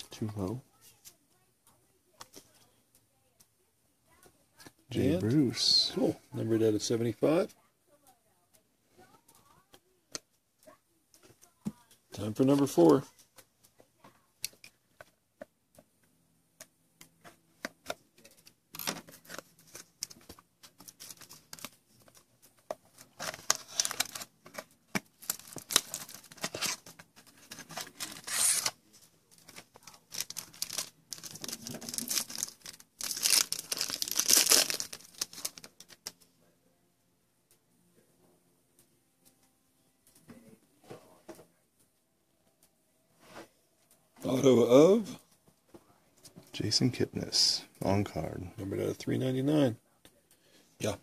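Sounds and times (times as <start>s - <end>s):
foil wrapper tearing and crinkling: 23.0s - 36.1s.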